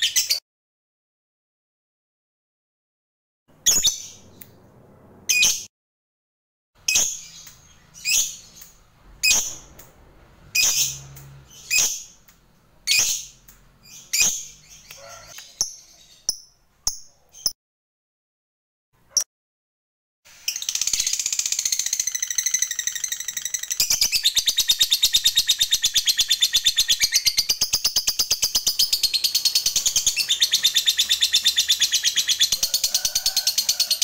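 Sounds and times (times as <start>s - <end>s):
bird chirping: 3.5s - 5.7s, 6.8s - 9.9s, 10.5s - 17.6s, 20.4s - 34.0s.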